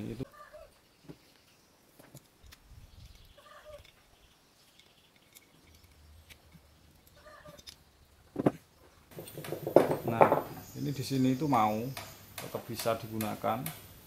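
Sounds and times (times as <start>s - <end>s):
faint animal calls: 0.2s - 0.8s, 3.4s - 3.9s, 7.2s - 7.7s
metal hose fittings clicking: 4.7s - 7.8s.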